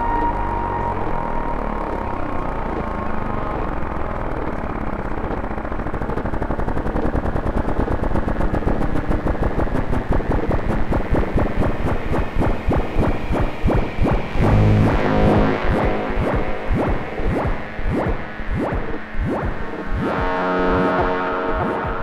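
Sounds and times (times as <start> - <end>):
low hum: 0.0 - 22.0
stuttering sharp clicks: 4.5 - 22.0.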